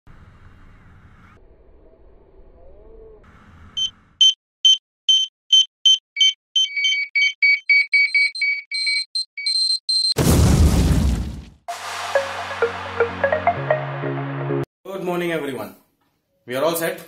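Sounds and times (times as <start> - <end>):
heart monitor beeps: 3.8 - 10.2.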